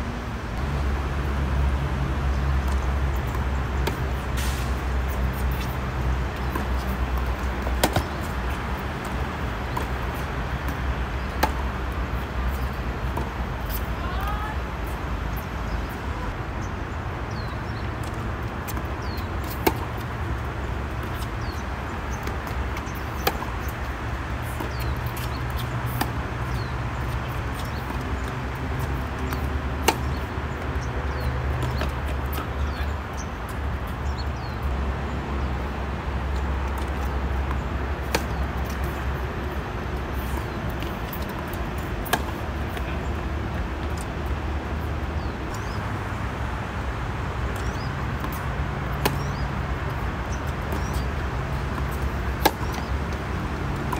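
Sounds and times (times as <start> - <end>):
tennis balls struck by rackets: 2.2 - 15.1, 17.3 - 34.2, 36.2 - 45.8, 47.4 - 53.9.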